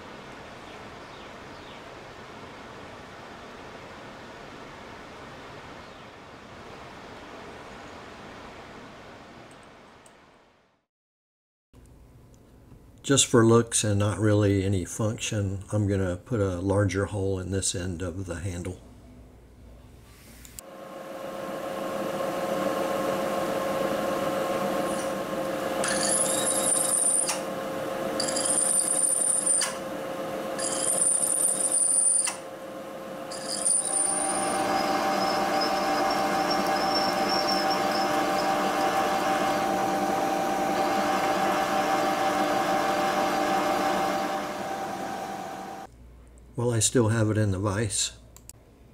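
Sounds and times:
milling machine spindle running: 20.8 - 45.9
high-pitched cutting squeal: 25.8 - 27.4, 33.3 - 45.9.

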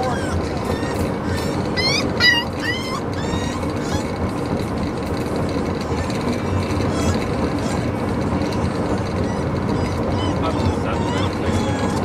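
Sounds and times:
car road and engine noise: 0.0 - 12.0
puppy whining: 0.0 - 12.0.

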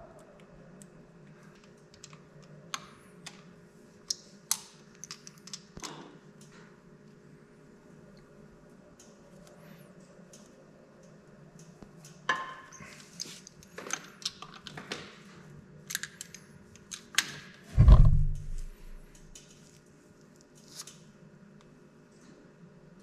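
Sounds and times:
heavy dull thump: 17.8 - 19.1.

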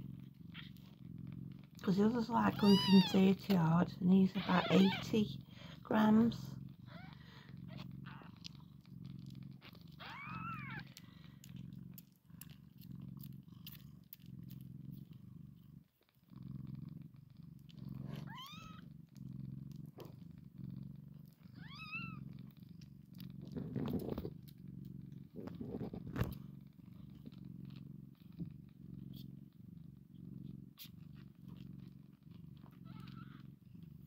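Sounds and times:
cat purring: 0.0 - 34.0
kitten squeaking: 2.3 - 5.3, 6.8 - 8.6, 9.3 - 11.0, 18.0 - 18.8, 21.3 - 22.2, 32.6 - 33.4.

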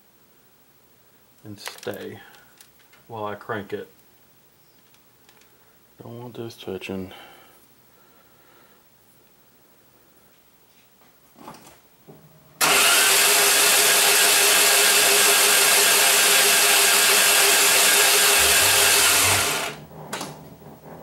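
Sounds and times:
starter motor cranking engine: 12.6 - 19.8.

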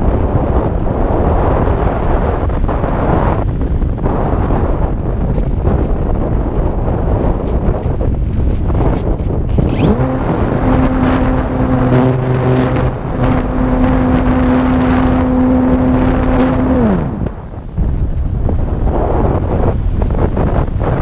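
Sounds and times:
wind rushing across microphone: 0.0 - 21.0
electric motor and propeller humming: 8.4 - 17.9.

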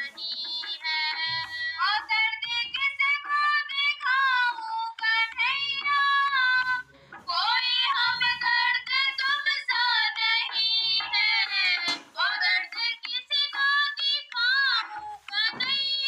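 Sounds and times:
high-pitched voice singing: 0.0 - 16.0.

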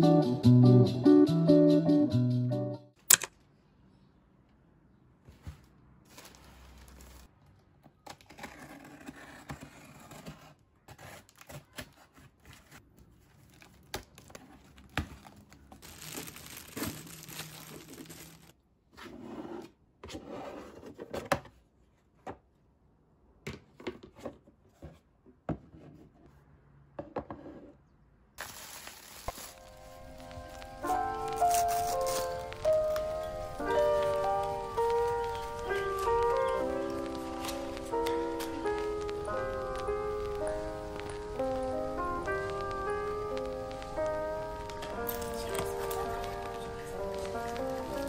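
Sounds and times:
plastic bags crinkling and tearing: 6.0 - 7.3, 12.6 - 18.6, 28.4 - 48.0.

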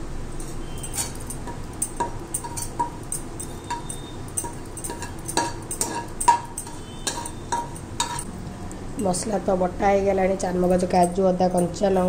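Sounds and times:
spatula scraping metal pan: 4.9 - 8.3.

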